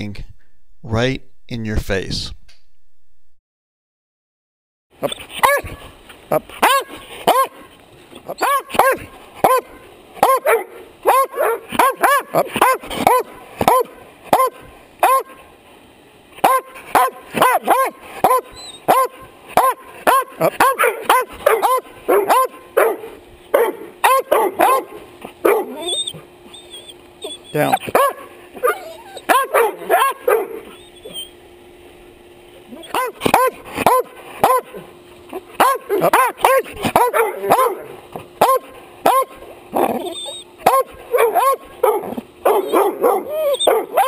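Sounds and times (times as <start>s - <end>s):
large dog barking: 5.4s - 5.7s, 6.6s - 7.7s, 8.3s - 15.4s, 16.4s - 26.2s, 27.7s - 30.8s, 32.7s - 44.0s.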